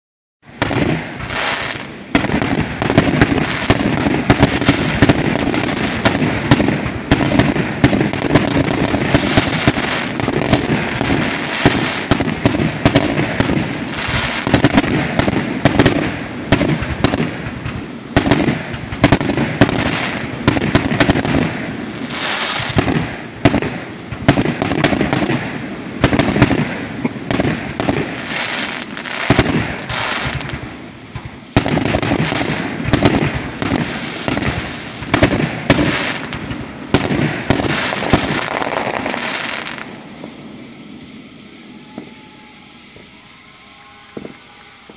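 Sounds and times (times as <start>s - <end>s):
fireworks bangs: 0.4s - 44.9s
fireworks crackling: 0.4s - 44.9s.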